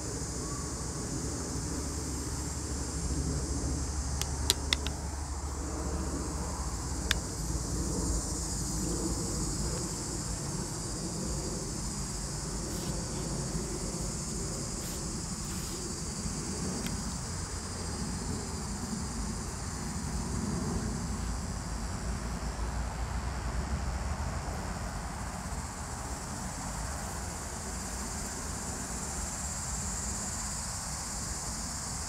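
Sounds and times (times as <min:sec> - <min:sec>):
low outdoor rumble: 0:00.0 - 0:24.6
crickets chirping: 0:00.0 - 0:32.0
sharp clicks: 0:04.2 - 0:05.0.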